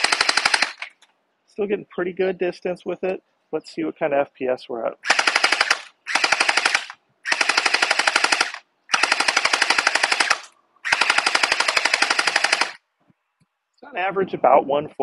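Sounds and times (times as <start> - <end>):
toy blaster rapid firing snaps: 0.0 - 0.9, 5.0 - 12.8.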